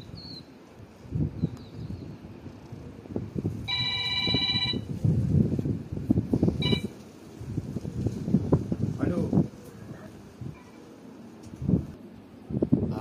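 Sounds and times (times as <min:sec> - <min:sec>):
trilling phone ringtone: 0:03.7 - 0:04.9, 0:06.6 - 0:06.9.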